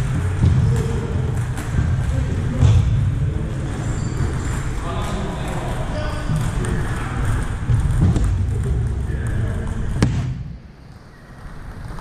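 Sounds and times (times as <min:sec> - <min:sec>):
low thuds: 0:00.0 - 0:03.8, 0:06.3 - 0:10.7.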